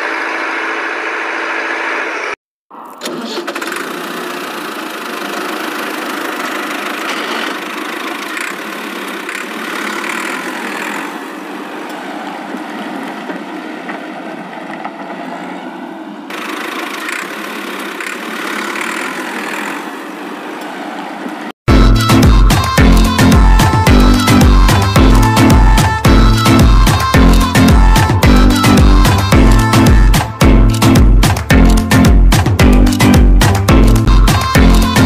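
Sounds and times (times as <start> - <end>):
toy wheels scraping on concrete: 3.4 - 21.6.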